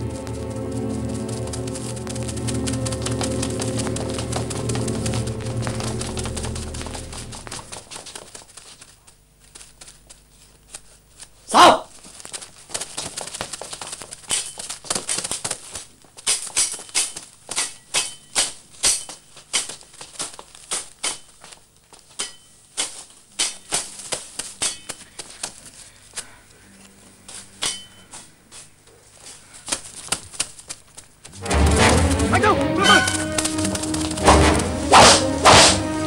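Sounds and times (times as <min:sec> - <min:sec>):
dry leaves rustling and crunching: 0:00.0 - 0:11.4, 0:28.6 - 0:36.0.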